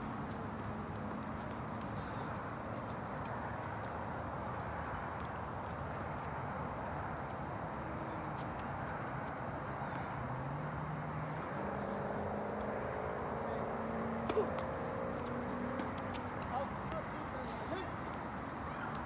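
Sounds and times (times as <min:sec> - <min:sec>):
steady background noise: 0:00.0 - 0:19.0.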